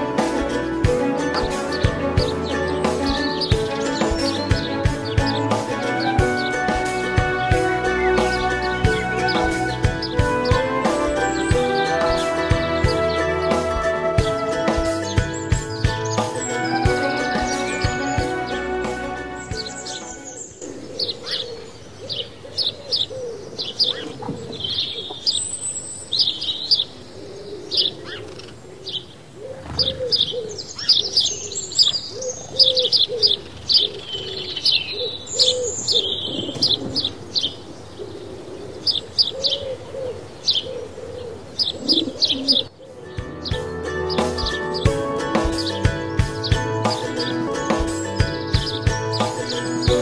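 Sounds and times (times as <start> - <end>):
background music: 0.0 - 20.6, 43.0 - 50.0
small birds chirping: 0.0 - 50.0
dove cooing: 19.7 - 25.4, 27.1 - 31.4, 32.1 - 43.2.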